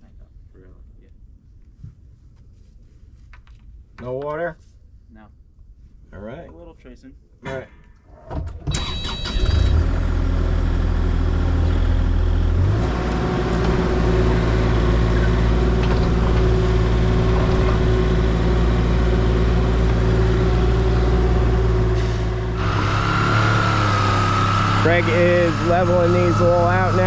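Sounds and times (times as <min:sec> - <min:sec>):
diesel engine running: 0:08.8 - 0:27.0
excavator digging soil: 0:22.0 - 0:27.0.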